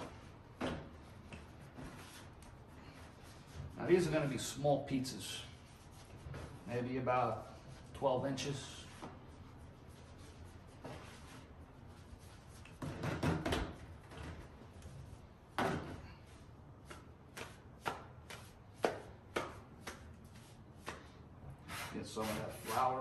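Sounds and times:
hands slapping dough: 16.7s - 21.3s.

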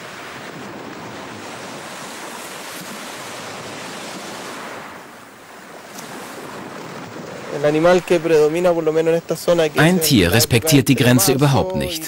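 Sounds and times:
sea waves rushing: 0.0s - 12.0s.

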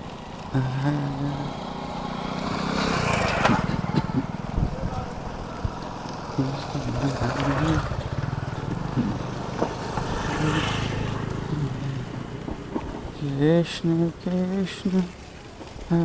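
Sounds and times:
road and wind rumble: 0.0s - 16.0s
man humming: 0.5s - 1.7s, 3.5s - 5.2s, 6.3s - 9.4s, 10.1s - 12.3s.

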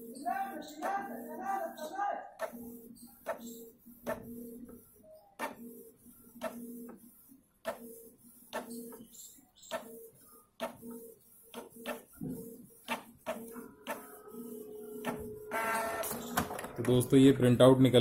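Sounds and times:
printer carriage motor humming: 11.6s - 17.5s
printer sharp clicks: 12.9s - 14.1s, 15.0s - 17.0s.

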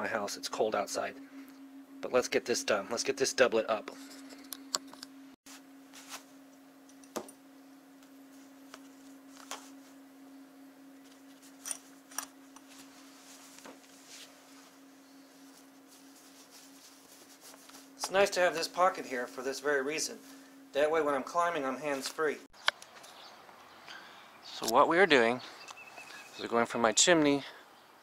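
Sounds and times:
steady low hum: 0.0s - 27.9s
clothing and tools rustling: 5.5s - 7.1s, 11.0s - 19.5s.

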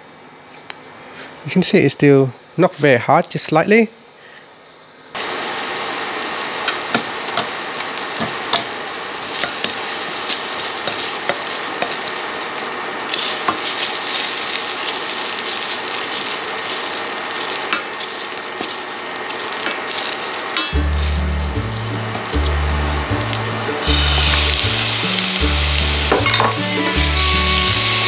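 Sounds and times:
oil sizzling in a pan: 5.2s - 28.0s
wooden spatula stirring in pan: 6.7s - 23.3s.

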